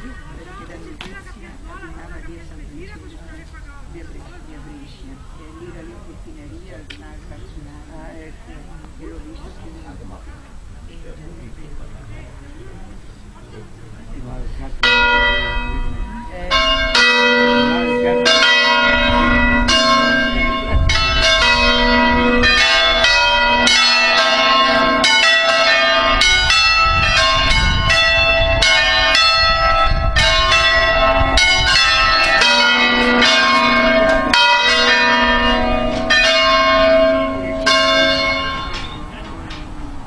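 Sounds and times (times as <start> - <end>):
church bells pealing: 14.8 - 40.0.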